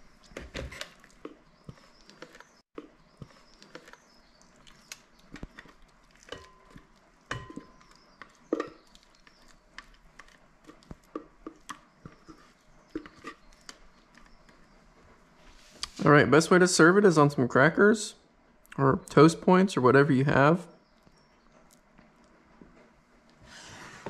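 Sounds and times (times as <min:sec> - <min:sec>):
spatula scraping bowl: 0:05.3 - 0:14.6.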